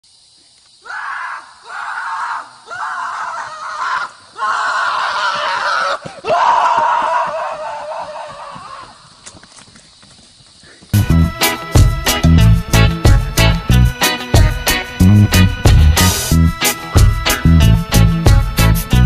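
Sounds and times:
horse screaming: 0:00.9 - 0:09.0.

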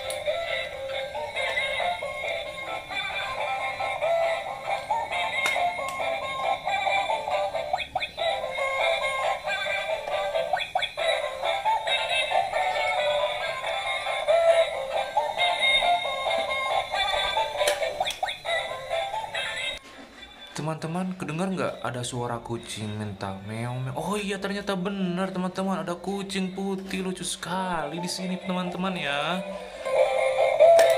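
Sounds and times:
toy electronic song: 0:00.0 - 0:20.6, 0:25.8 - 0:30.9.

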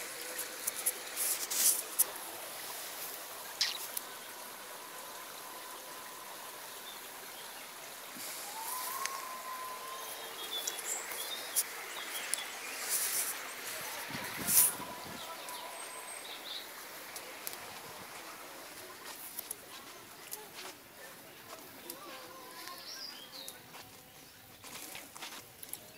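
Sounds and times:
open-air ambience hiss: 0:00.0 - 0:25.9
bird chirping: 0:03.6 - 0:04.2, 0:08.4 - 0:17.3.

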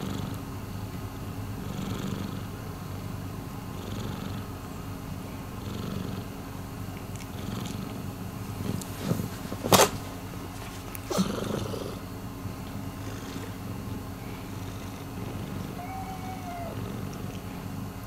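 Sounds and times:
cat purring: 0:00.0 - 0:00.5, 0:01.6 - 0:03.1, 0:03.7 - 0:04.6, 0:05.2 - 0:09.4, 0:11.0 - 0:18.0.

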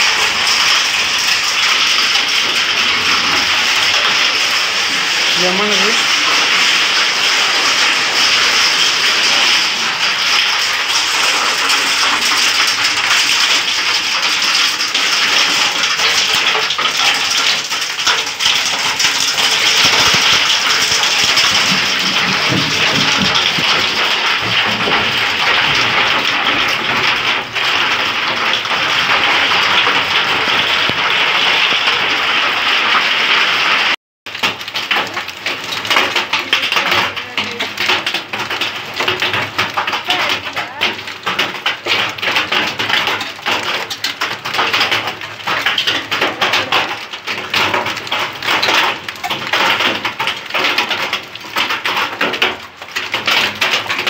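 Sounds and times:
hail and rain falling: 0:00.0 - 0:54.0.

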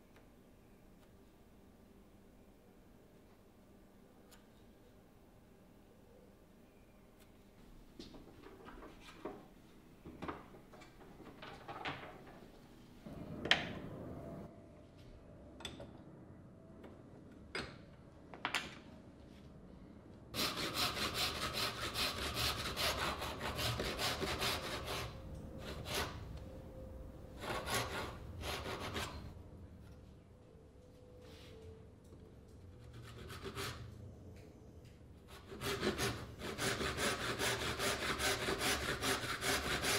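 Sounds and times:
hand saw cutting wood: 0:20.4 - 0:26.2, 0:35.3 - 0:39.9.

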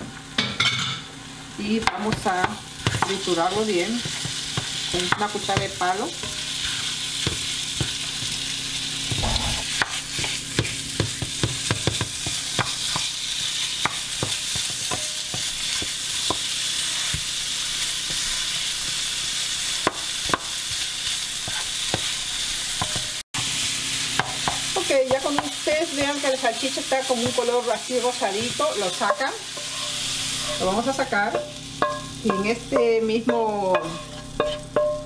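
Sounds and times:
meat sizzling in butter: 0:01.3 - 0:35.0
wooden spoon scraping pan: 0:21.4 - 0:22.1, 0:28.3 - 0:31.3, 0:33.8 - 0:34.7.

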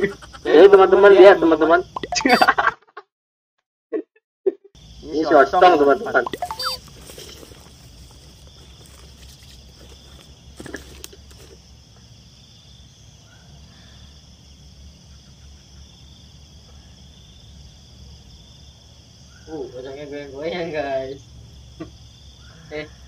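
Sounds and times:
night insects trilling: 0:00.0 - 0:02.6, 0:04.8 - 0:23.0
brief rustle: 0:06.3 - 0:11.6.

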